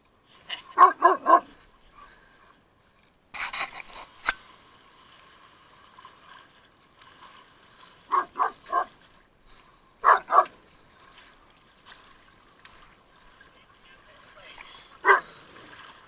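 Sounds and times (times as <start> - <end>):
dog barking: 0.8 - 1.5, 8.1 - 8.9, 10.0 - 10.5, 15.0 - 15.4.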